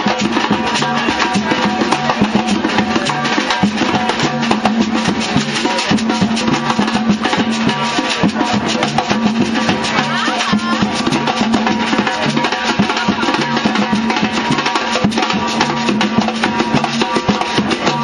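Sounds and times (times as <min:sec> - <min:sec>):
samba drums and percussion: 0:00.0 - 0:18.0.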